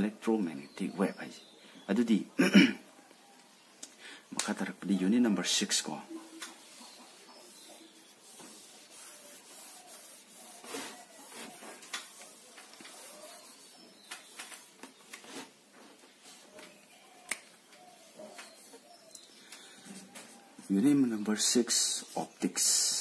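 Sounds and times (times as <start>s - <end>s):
cloth wiping a whiteboard: 5.6s - 15.6s.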